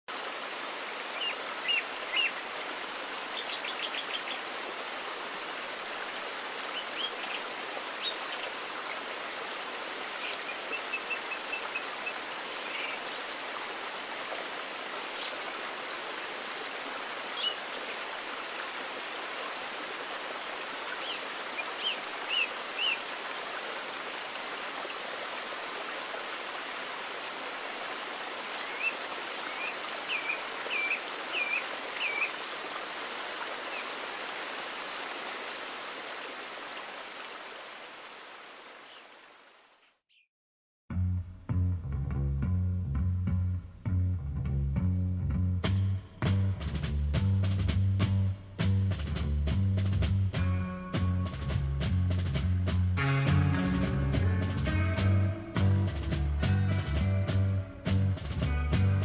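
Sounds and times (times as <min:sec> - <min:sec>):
waterfall and stream rushing: 0:00.1 - 0:40.0
birds chirping: 0:01.1 - 0:16.2, 0:16.9 - 0:19.1, 0:20.6 - 0:26.7, 0:28.3 - 0:36.3.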